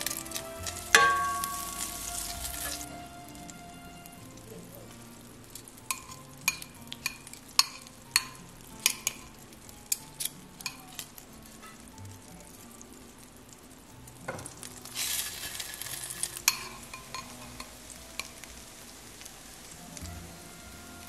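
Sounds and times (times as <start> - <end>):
metal tongs clinking on glass bowl: 0.0 - 1.9, 5.9 - 9.3, 9.9 - 11.1, 16.5 - 18.3.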